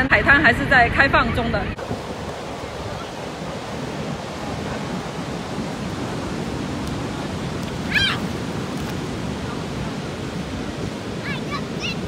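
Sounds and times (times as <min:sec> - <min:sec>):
ocean waves breaking: 0:01.7 - 0:12.0.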